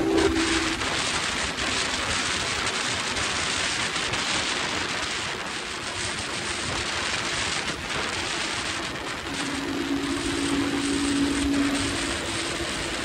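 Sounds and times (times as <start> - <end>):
wind rushing over microphone: 0.0 - 13.0.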